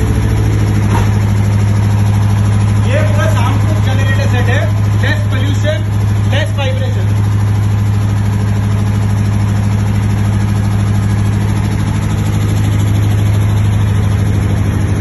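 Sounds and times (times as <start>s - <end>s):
diesel generator humming: 0.0s - 15.0s.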